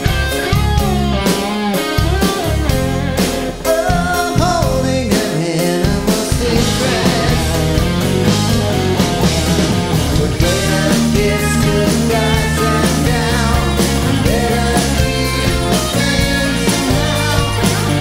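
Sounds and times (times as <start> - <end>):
drums: 0.0 - 18.0
electric guitars: 0.0 - 18.0
keyboards: 0.0 - 18.0
person singing: 3.5 - 8.5, 9.4 - 18.0.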